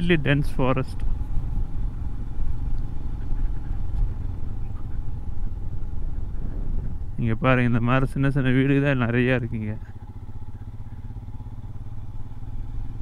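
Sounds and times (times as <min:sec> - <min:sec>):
motorcycle engine rumble: 0:00.0 - 0:13.0
road noise: 0:00.0 - 0:13.0.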